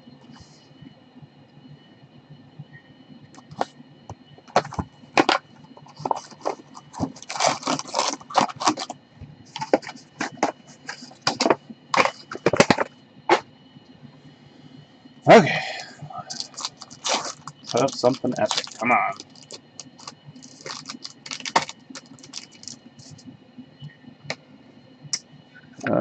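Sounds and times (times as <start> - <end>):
cardboard box and wrapping crinkling: 4.5 - 8.9, 9.5 - 12.9, 16.3 - 22.8.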